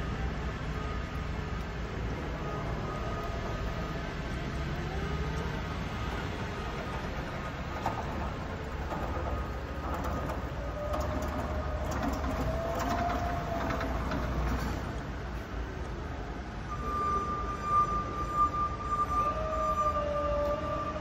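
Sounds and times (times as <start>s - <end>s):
wheels rumbling on concrete: 0.0s - 21.0s
steady high tone: 16.0s - 21.0s.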